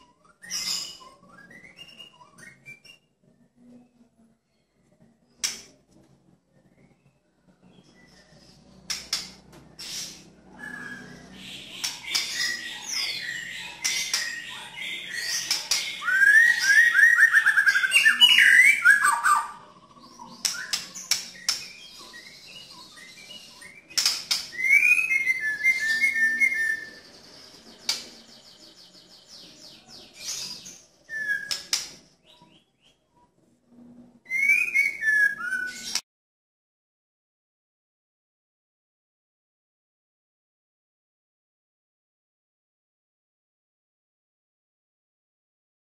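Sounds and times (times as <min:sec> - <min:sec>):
bird singing whistled notes: 0:00.0 - 0:04.0, 0:09.8 - 0:33.3, 0:34.2 - 0:36.0.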